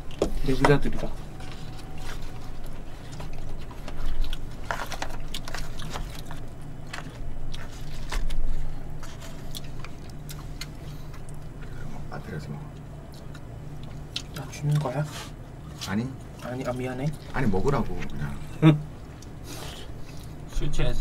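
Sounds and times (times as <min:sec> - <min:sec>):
steady low hum: 0:00.0 - 0:21.0
chewing: 0:01.2 - 0:12.0, 0:12.6 - 0:18.4.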